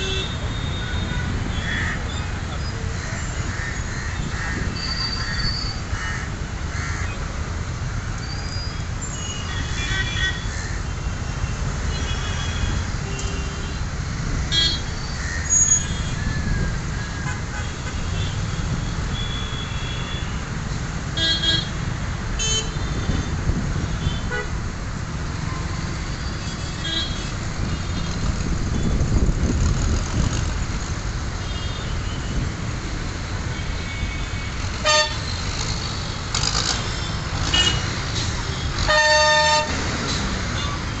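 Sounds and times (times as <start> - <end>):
vehicle horns honking: 0.0 - 1.9, 17.0 - 20.5, 23.9 - 24.6, 33.5 - 35.4, 36.8 - 39.9
road traffic rumble: 0.0 - 41.0.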